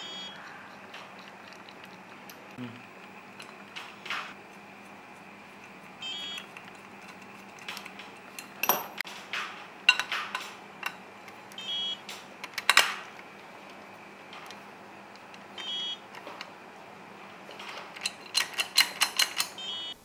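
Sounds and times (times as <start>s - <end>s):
small metal parts clinking: 17.6s - 19.6s.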